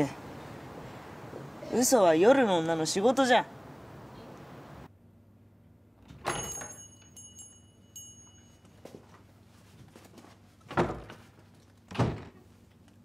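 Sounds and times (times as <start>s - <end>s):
door bell jingling: 6.2s - 8.9s.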